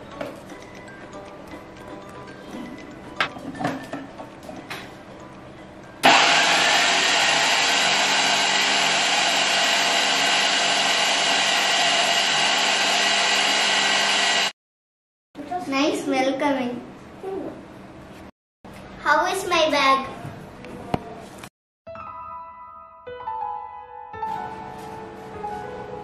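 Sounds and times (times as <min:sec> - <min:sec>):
electric mixer grinder running: 0:06.0 - 0:14.6.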